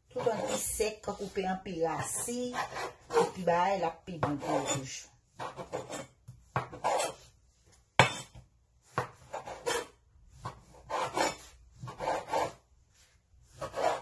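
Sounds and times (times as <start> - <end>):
knife sawing through bread crust: 0.2 - 1.3, 2.1 - 3.4, 4.3 - 6.1, 6.7 - 7.2, 8.9 - 10.0, 10.6 - 12.6, 13.5 - 14.0.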